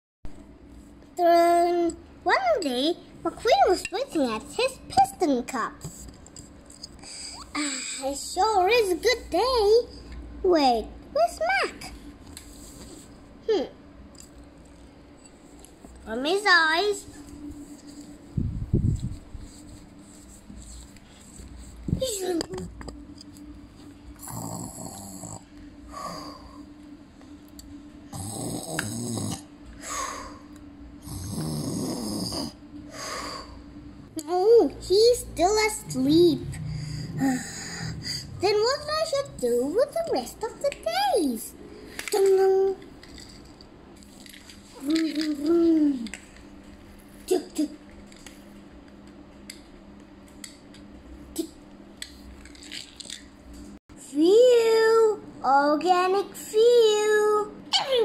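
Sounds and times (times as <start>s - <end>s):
steady low hum: 0.3s - 58.0s
child imitating snoring: 24.2s - 26.6s, 28.1s - 30.4s, 31.0s - 32.6s, 36.5s - 38.4s.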